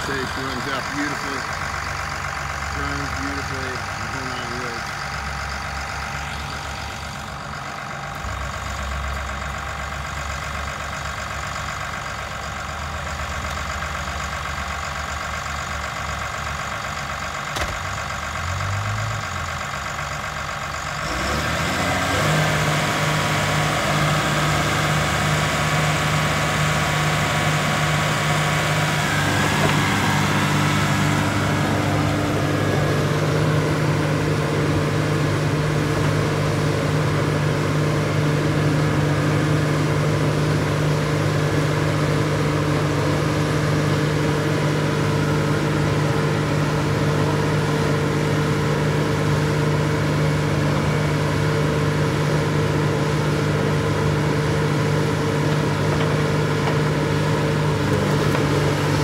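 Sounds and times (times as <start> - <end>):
bulldozer diesel engine running: 0.0 - 59.0.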